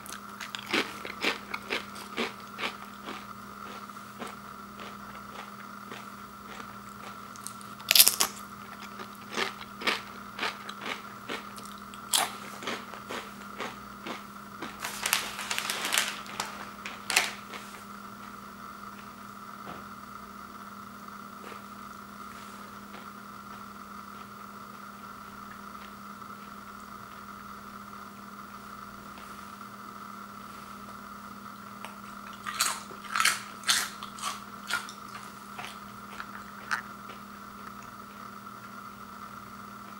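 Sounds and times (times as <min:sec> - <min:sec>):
person chewing crunchy chips: 0:00.0 - 0:17.8, 0:31.9 - 0:38.3
faint steady hum: 0:00.0 - 0:39.9.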